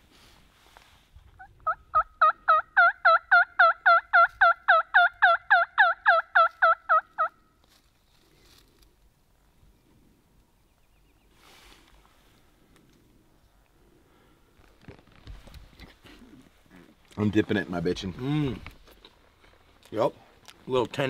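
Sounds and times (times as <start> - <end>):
turkey call yelps: 1.4 - 7.3.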